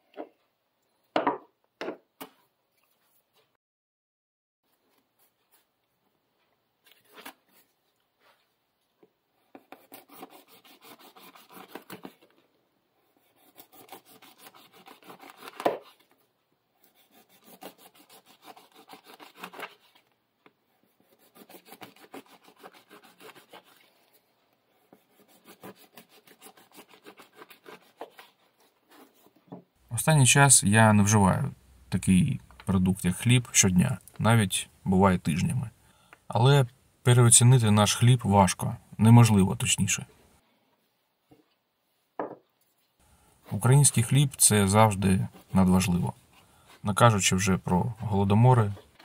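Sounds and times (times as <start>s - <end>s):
knife sawing through crusty bread: 9.7s - 12.1s, 13.2s - 15.7s, 16.8s - 19.9s, 21.0s - 24.1s, 25.0s - 29.2s.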